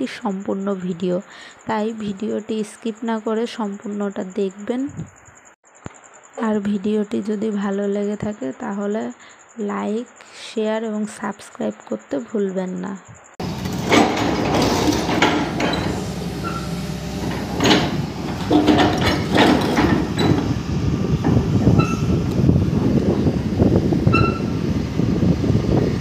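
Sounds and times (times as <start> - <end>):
metallic squeals: 13.4 - 22.3, 24.0 - 24.7
excavator engine running: 13.4 - 26.0.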